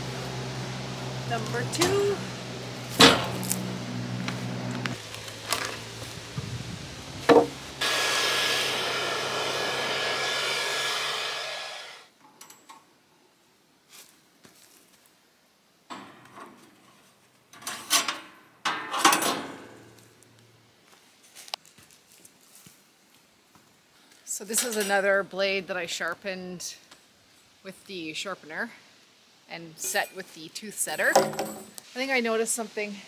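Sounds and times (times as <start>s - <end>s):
sawmill engine hum: 0.0s - 12.1s
metal clanks and rattles: 2.9s - 3.5s, 15.9s - 19.9s, 31.0s - 31.8s
boards knocking down: 3.0s - 3.5s, 7.3s - 7.6s.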